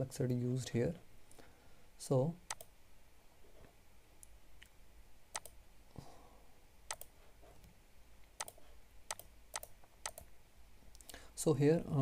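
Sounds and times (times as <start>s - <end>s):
computer mouse clicks: 2.5s - 2.7s, 5.3s - 5.6s, 6.9s - 7.1s, 8.3s - 10.3s.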